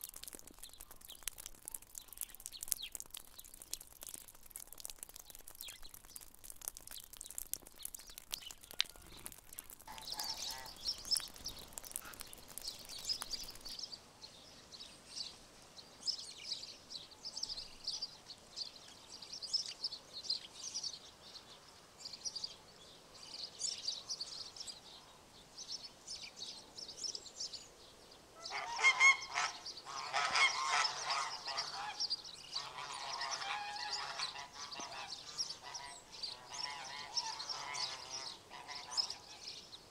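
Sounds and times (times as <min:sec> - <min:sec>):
rapid crackling ticks: 0:00.0 - 0:13.8
small birds chirping: 0:00.0 - 0:39.9
large bird honking calls: 0:28.4 - 0:32.0.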